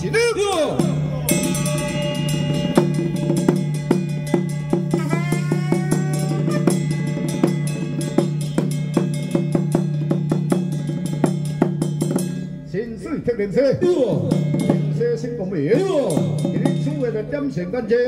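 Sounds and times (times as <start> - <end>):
held low tone: 0.0 - 8.7
bending melodic line: 0.0 - 10.2
drum strokes: 0.0 - 12.6.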